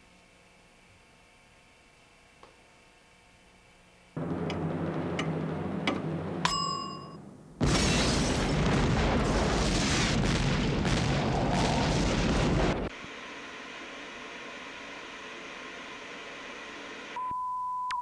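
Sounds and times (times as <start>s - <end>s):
loud explosion blast rumbling: 4.2s - 6.4s, 7.6s - 12.9s
low hum: 4.2s - 16.4s
short ringing ding: 6.4s - 7.2s.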